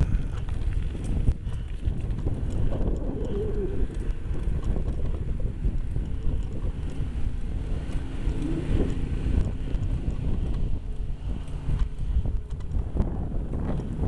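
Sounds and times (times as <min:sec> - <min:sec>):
wind rumbling on microphone: 0:00.0 - 0:14.0
low wavering tone: 0:07.0 - 0:11.6.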